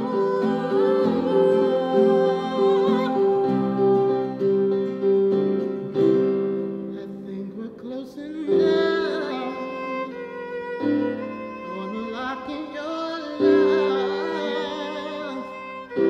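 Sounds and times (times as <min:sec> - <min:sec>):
man singing: 0:00.0 - 0:04.4, 0:06.9 - 0:10.3, 0:11.6 - 0:15.8
bowed violin line: 0:00.0 - 0:05.2, 0:08.5 - 0:16.0
acoustic band playing: 0:00.0 - 0:16.0.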